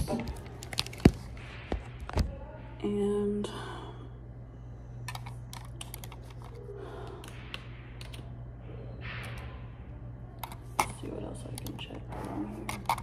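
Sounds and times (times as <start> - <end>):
low hum: 0.0 - 13.0
keyboard typing: 8.0 - 8.3.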